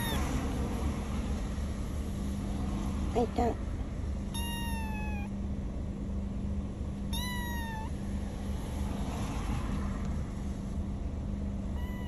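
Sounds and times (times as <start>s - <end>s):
kitten meowing: 0.0s - 0.3s, 4.3s - 5.3s, 7.1s - 8.0s, 11.8s - 12.0s
steady low hum: 0.0s - 12.0s.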